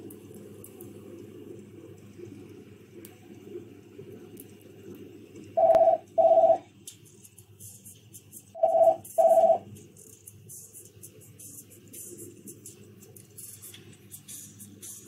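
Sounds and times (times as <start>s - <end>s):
short electronic beeps: 8.6s - 9.6s.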